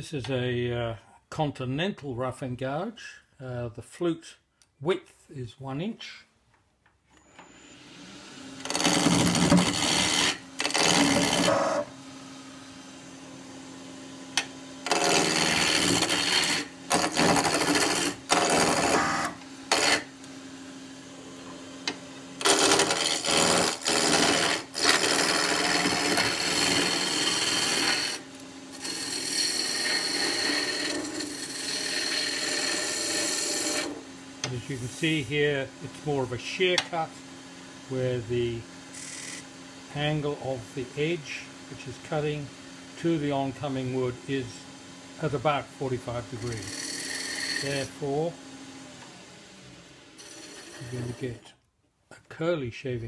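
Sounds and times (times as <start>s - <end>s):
wood lathe humming: 7.7s - 51.4s
gouge cutting wood: 8.6s - 11.9s, 14.4s - 20.1s, 22.4s - 34.0s, 46.3s - 48.2s, 50.2s - 51.3s.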